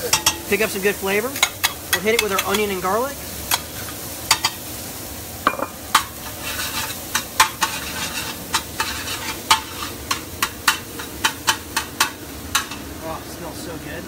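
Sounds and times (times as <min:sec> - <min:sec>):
mushrooms sizzling in pan: 0:00.0 - 0:14.0
utensil clicking against pan: 0:01.4 - 0:02.7, 0:08.5 - 0:12.9.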